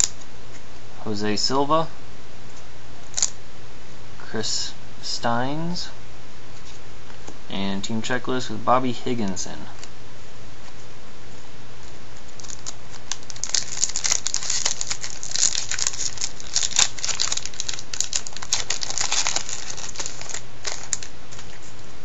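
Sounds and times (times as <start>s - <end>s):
foil wrapper tearing and crinkling: 12.3s - 21.6s.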